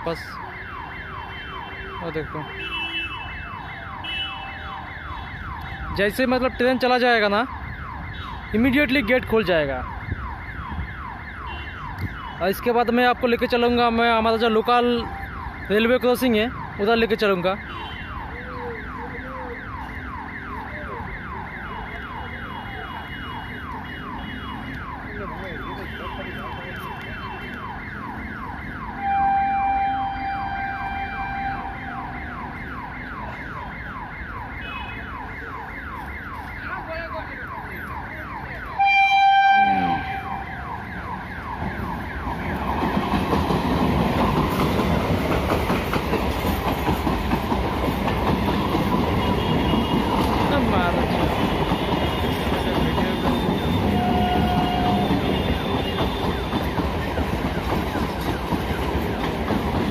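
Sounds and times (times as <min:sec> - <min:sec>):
level-crossing siren wailing: 0:00.0 - 0:43.6, 0:50.4 - 0:59.4
train horn blast: 0:29.0 - 0:31.8, 0:38.8 - 0:40.4, 0:53.1 - 0:56.6
train wheels rumbling on rails: 0:40.8 - 0:59.9.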